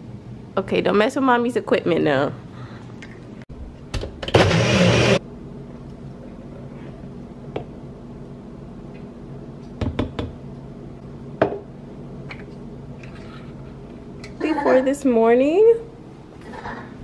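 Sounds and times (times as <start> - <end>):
blender running: 4.2 - 5.2
cup and jar knocking on countertop: 9.8 - 10.4, 11.4 - 11.6.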